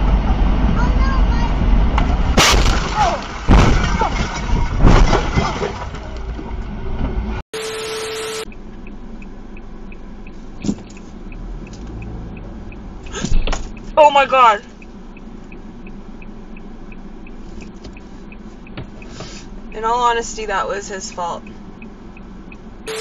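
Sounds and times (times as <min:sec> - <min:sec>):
road noise: 0:00.0 - 0:23.0
car crash: 0:01.6 - 0:07.3
static burst with steady tone: 0:07.6 - 0:10.5
faint high beeps: 0:21.1 - 0:23.0.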